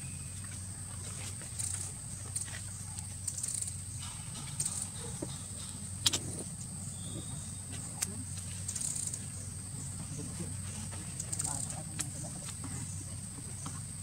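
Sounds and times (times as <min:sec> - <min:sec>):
steady background hum: 0:00.0 - 0:14.0
sharp click: 0:03.2 - 0:06.4.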